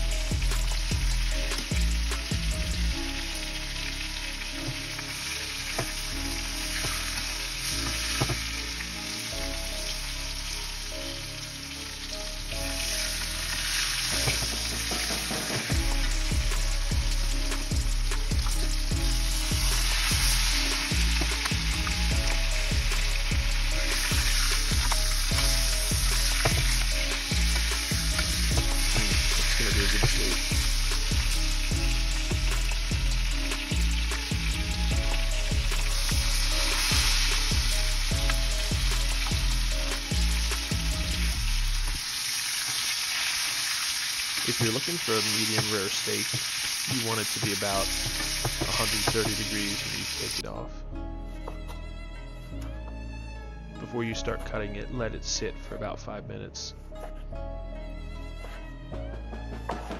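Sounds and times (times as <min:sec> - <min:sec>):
butter sizzling in a pan: 0:00.0 - 0:50.4.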